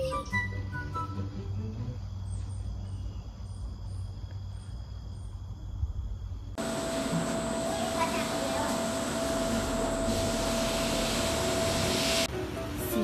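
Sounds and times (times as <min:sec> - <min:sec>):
conveyor belt machine hum: 0:06.6 - 0:12.6.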